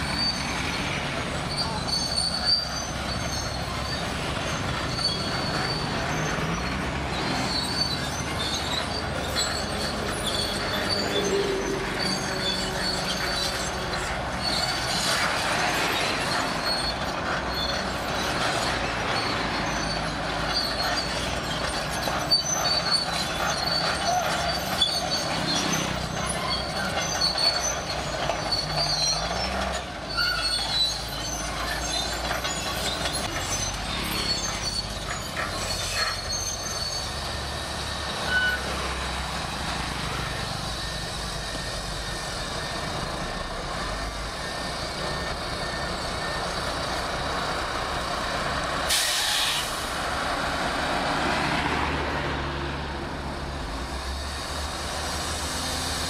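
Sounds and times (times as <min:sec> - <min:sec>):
diesel engine running: 0:00.0 - 0:56.0
steel tracks squealing and clanking: 0:00.0 - 0:56.0
short hiss: 0:48.9 - 0:50.0.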